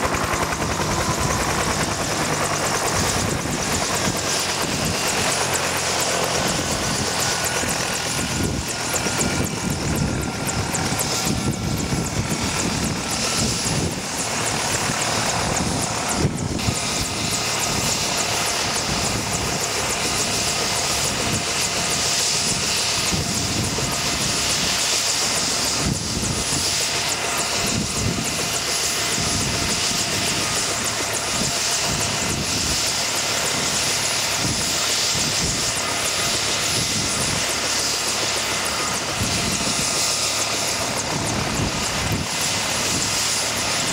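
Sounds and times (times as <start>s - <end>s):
helicopter rotor beating: 0.0s - 43.9s
turbine engine whining: 0.0s - 43.9s.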